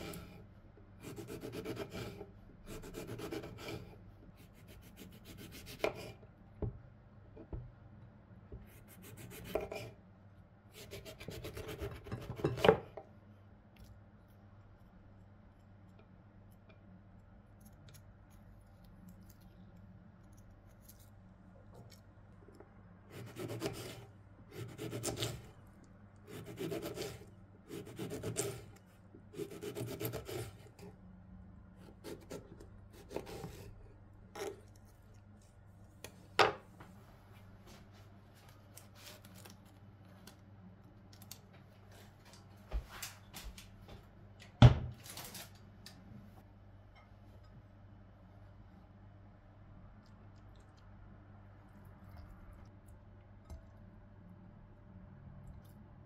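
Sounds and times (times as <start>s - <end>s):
knife slicing on cutting board: 24.6s - 25.5s, 26.3s - 28.6s.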